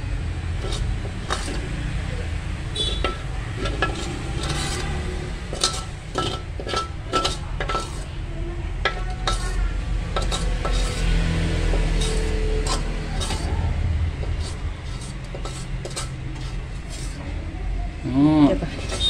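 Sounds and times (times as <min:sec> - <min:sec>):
steady low hum: 0:00.0 - 0:18.1
metal spoon clinking in a wok: 0:02.8 - 0:04.9, 0:05.5 - 0:08.1, 0:08.8 - 0:11.1, 0:11.7 - 0:13.5, 0:18.8 - 0:19.0.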